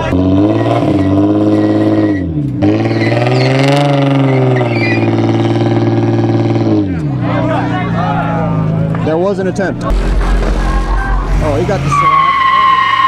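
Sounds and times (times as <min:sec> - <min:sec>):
car engine revving hard: 0:00.0 - 0:07.0.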